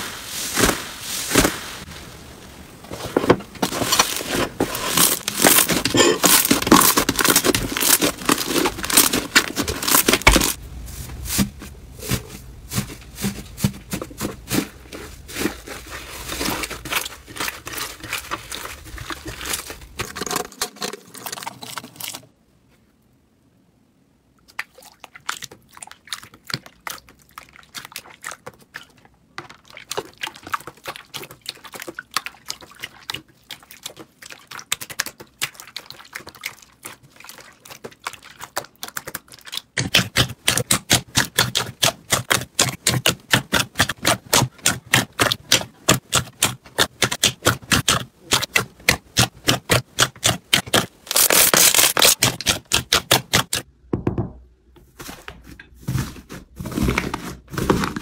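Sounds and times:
hands squishing slime: 3.7s - 10.6s, 11.3s - 20.0s, 24.6s - 53.6s.

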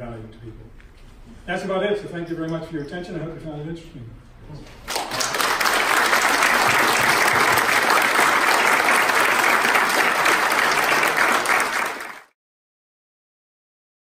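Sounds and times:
audience applauding: 4.8s - 12.4s.

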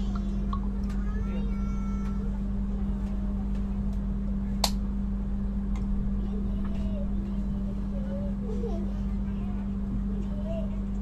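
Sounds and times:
faint voices: 0.0s - 4.5s
train carriage hum: 0.0s - 11.0s
sharp click: 4.6s - 4.8s.

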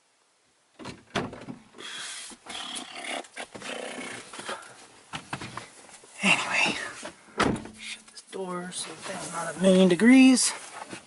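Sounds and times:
rustling and scraping handling noise: 3.4s - 11.0s.

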